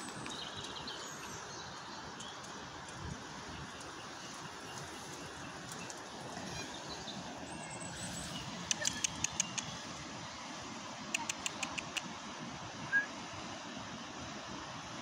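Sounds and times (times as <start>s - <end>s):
sharp high-pitched ticks: 8.7s - 9.8s, 11.2s - 12.1s.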